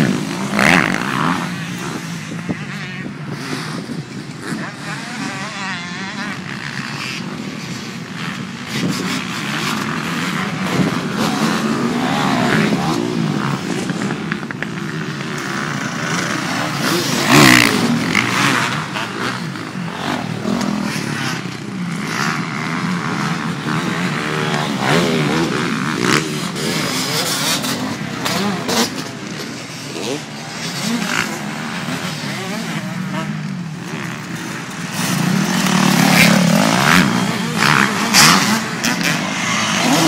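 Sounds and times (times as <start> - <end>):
motocross bike engines revving: 0.0 - 40.0.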